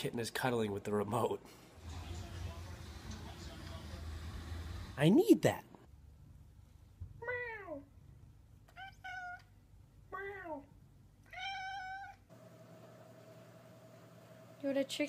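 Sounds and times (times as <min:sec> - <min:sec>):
cat meowing: 0:08.7 - 0:09.5, 0:11.3 - 0:12.2.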